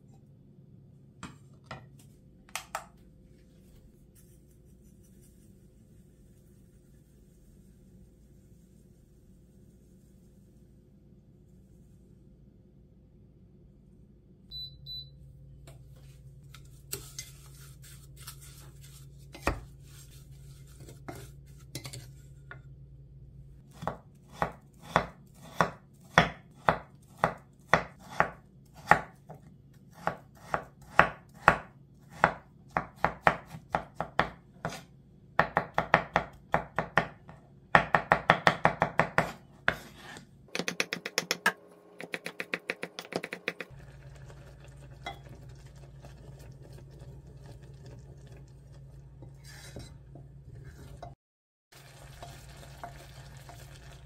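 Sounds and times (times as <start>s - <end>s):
knife chopping on wooden board: 23.8s - 29.4s, 30.0s - 34.8s, 37.8s - 39.9s.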